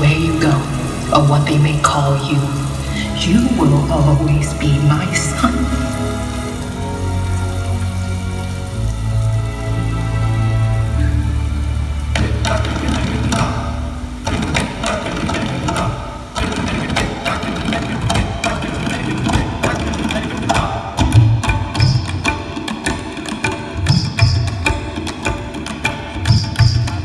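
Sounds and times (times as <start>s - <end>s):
soundtrack music with drums: 0.0s - 27.0s
deep drum beats: 12.0s - 27.0s.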